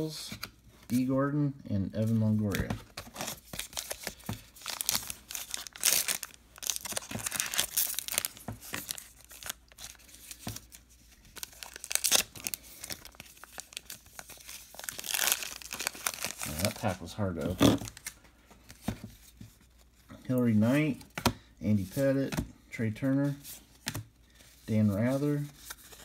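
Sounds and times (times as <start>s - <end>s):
foil wrapper tearing and crinkling: 3.2s - 10.1s, 11.3s - 17.0s.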